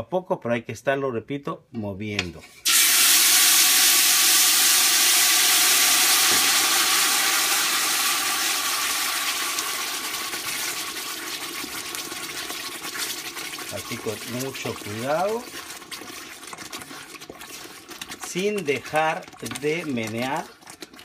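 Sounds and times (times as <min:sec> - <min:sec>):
sauce sizzling in hot oil: 0:02.6 - 0:21.0
wooden spoon stirring: 0:09.3 - 0:21.0.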